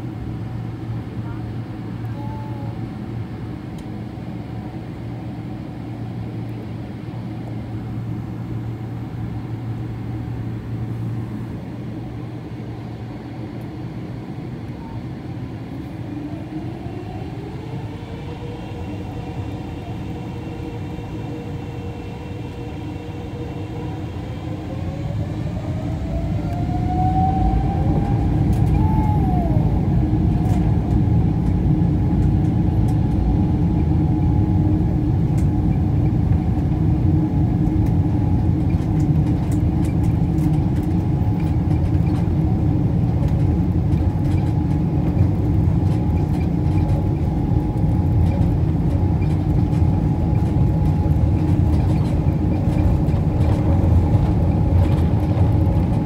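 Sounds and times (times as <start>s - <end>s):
jet engines spooling up: 15.1s - 56.0s.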